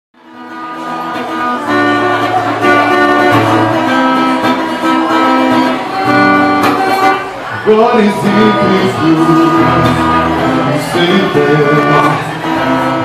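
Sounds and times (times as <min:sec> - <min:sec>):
acoustic guitar strumming chords: 0:00.2 - 0:13.0.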